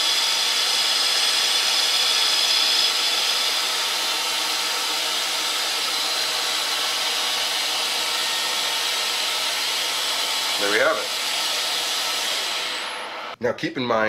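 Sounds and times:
metal lathe running: 0.0s - 13.4s.

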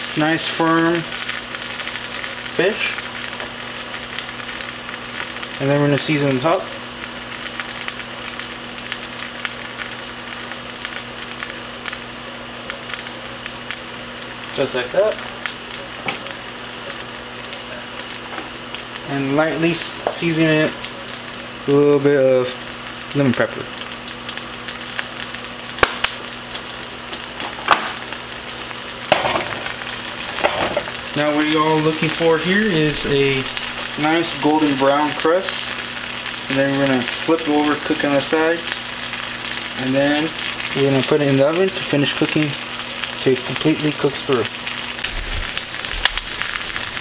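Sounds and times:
sharp pops of frying: 0.0s - 19.0s, 22.6s - 32.1s
fish frying in butter: 0.0s - 47.0s.

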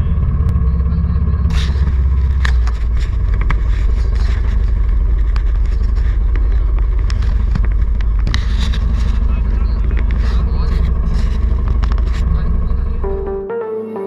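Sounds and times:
motorcycle engine running: 0.0s - 13.4s
scraping on microphone: 1.4s - 12.8s.

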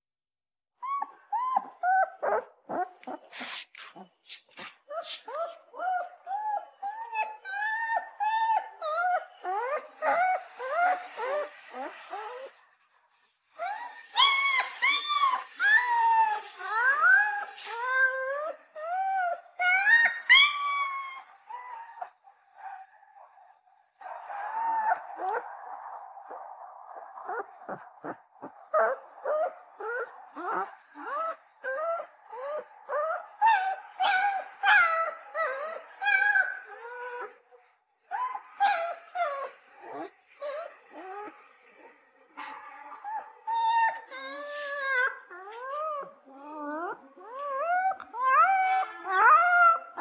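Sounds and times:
puppy whimpering: 0.8s - 12.6s, 13.6s - 22.2s, 24.2s - 25.4s, 27.2s - 37.4s, 38.1s - 42.0s, 42.9s - 50.0s.

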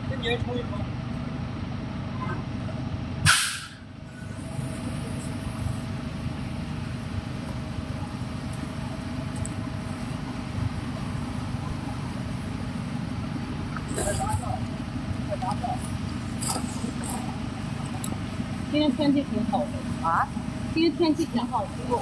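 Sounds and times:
short sharp hiss: 3.3s - 3.8s.

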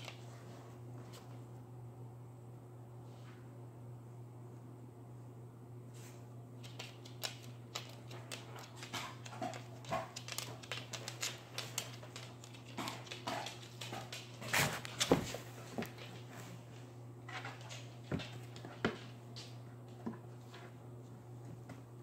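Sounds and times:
dog claws clicking on wooden floor: 6.6s - 16.2s.

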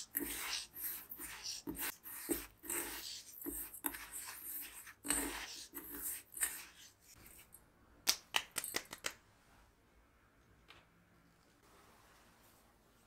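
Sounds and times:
fingers rubbing sugar: 0.0s - 7.6s.

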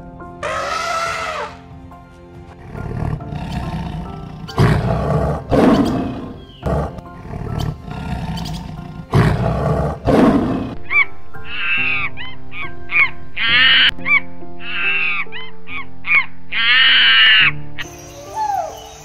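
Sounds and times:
background music: 0.0s - 19.0s
lion roaring: 0.4s - 1.6s, 2.6s - 10.8s.

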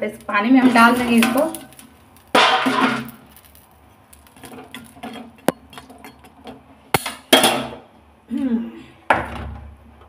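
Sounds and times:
loud metal clatter: 0.6s - 6.4s.

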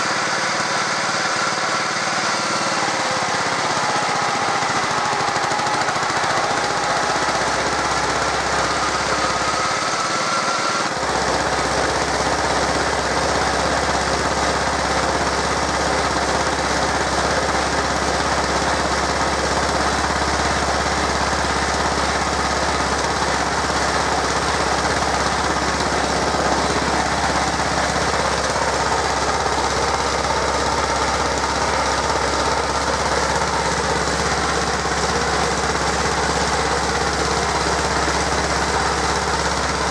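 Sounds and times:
roller engine humming: 17.6s - 39.9s.

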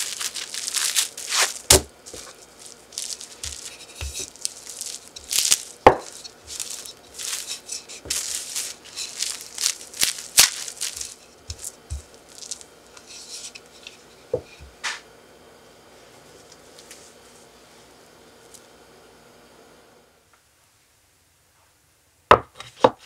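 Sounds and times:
plastic wrap crinkling: 0.0s - 14.2s.

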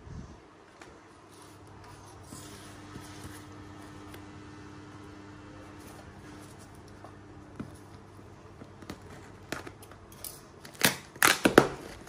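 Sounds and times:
scissors snipping tape: 8.9s - 12.0s.

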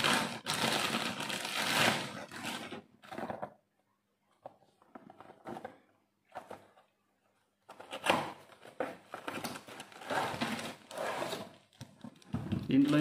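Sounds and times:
plastic bag crinkling and rustling: 0.0s - 2.8s, 8.5s - 13.0s
packaging scraping: 0.0s - 3.3s, 7.7s - 13.0s.

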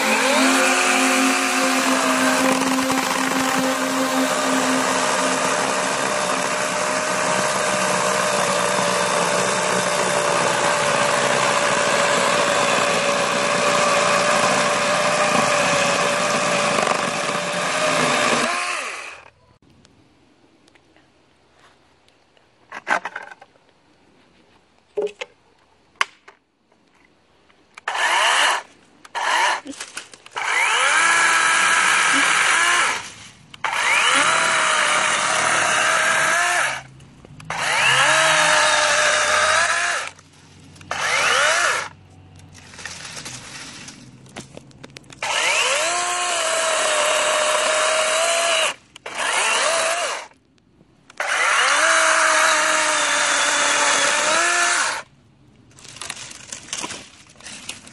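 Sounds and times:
battery chainsaw cutting branch: 0.0s - 19.3s, 27.8s - 33.0s, 33.6s - 36.8s, 37.5s - 40.2s, 40.9s - 41.9s, 45.2s - 50.3s, 51.1s - 55.0s.

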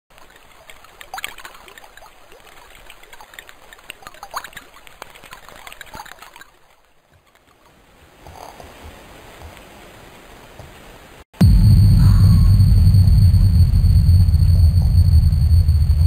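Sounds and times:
stream water trickling: 0.1s - 10.7s.

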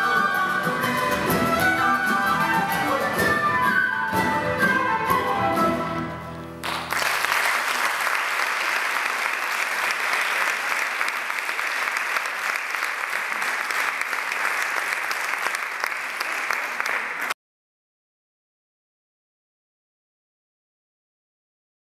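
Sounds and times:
audience applause: 6.6s - 17.4s.

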